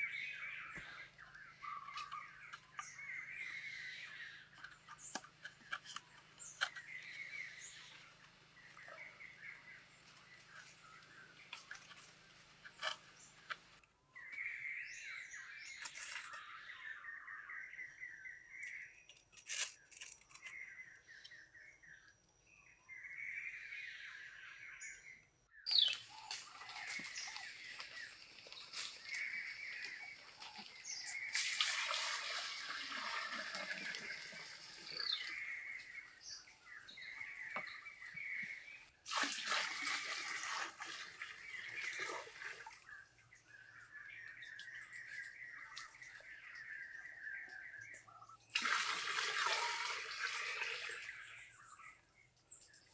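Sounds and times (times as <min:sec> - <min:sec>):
birds chirping: 0:00.0 - 0:39.0, 0:39.8 - 0:52.9
water splashing from a pot: 0:25.9 - 0:36.0, 0:38.4 - 0:42.9, 0:48.5 - 0:51.3.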